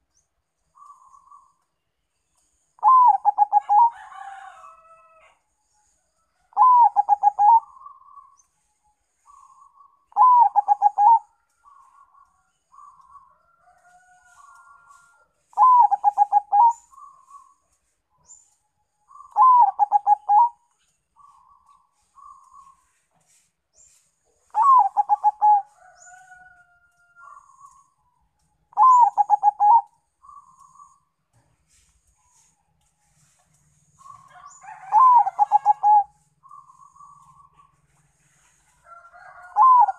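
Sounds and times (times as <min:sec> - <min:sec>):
dove cooing: 0:02.8 - 0:04.0, 0:06.5 - 0:08.2, 0:09.3 - 0:13.3, 0:15.5 - 0:17.6, 0:19.1 - 0:20.6, 0:24.5 - 0:25.8, 0:28.8 - 0:31.0, 0:34.0 - 0:37.7, 0:39.3 - 0:39.9.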